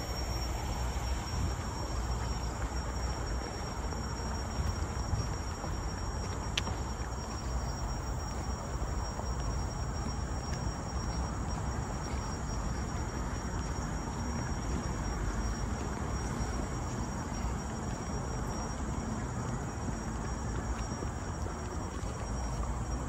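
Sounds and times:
high-pitched insect call: 0.0 - 23.0.

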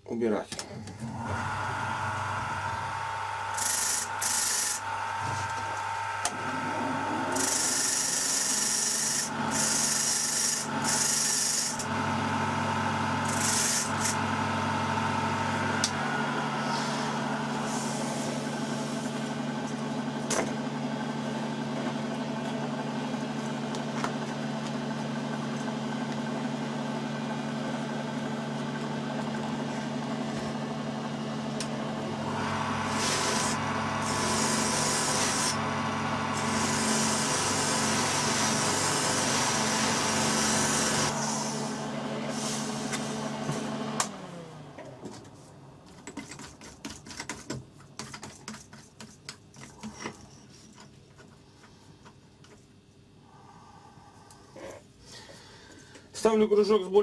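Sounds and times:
bench grinder motor running: 1.0 - 44.6
harsh scratching on wire wheel: 3.5 - 4.8, 7.2 - 11.9, 13.2 - 14.2.

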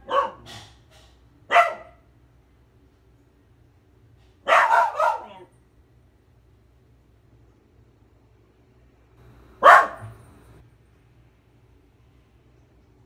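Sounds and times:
dog barking: 0.0 - 0.6, 1.5 - 2.1, 4.4 - 5.5, 9.6 - 10.2.

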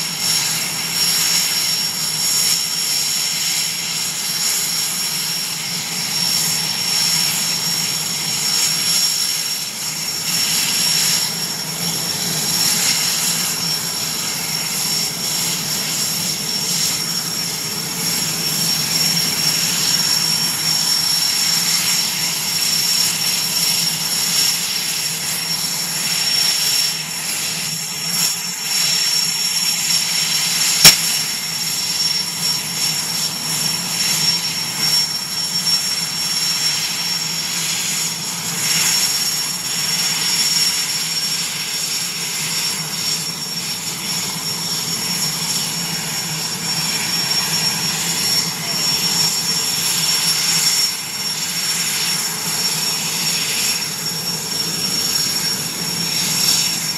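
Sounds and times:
helicopter turbine and rotor: 0.0 - 56.9.

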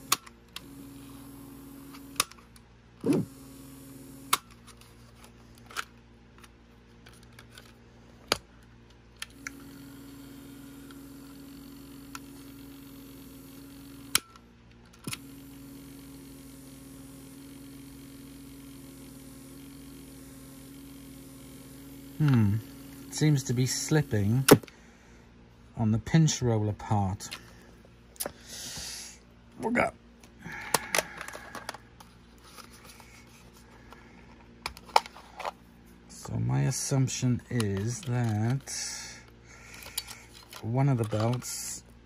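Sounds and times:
small motor humming: 0.0 - 5.8, 9.2 - 25.2, 30.4 - 41.8.

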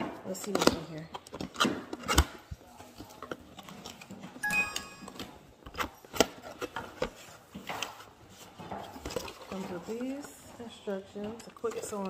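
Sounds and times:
cardboard packaging rustling and scraping: 5.1 - 12.0.

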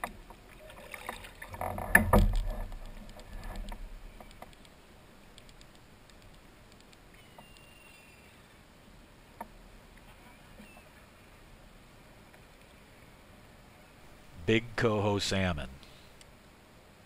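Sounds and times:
paddle splashing against kayak hull: 0.0 - 4.0.

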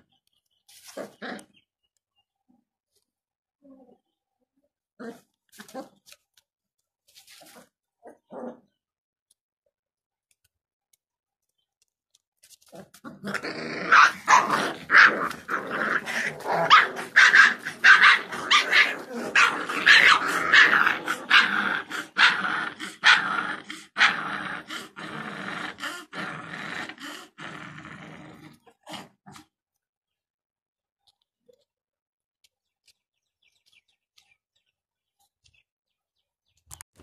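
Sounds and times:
puppies growling and yapping: 0.8 - 1.6, 7.4 - 8.8, 12.6 - 29.5.

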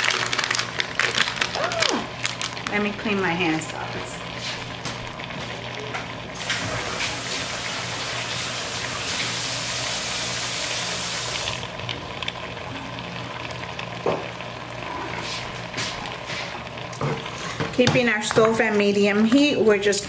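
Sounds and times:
tap running: 4.7 - 9.5, 14.0 - 14.4.

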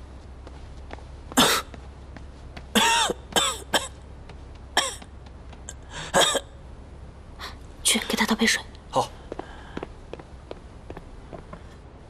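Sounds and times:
man coughing hard: 1.4 - 1.7, 2.7 - 4.0, 4.8 - 5.0, 6.1 - 6.4.

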